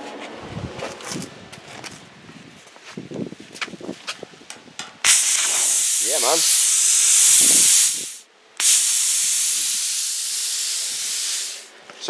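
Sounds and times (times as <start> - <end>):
plasma cutter torch hissing: 5.0 - 11.7.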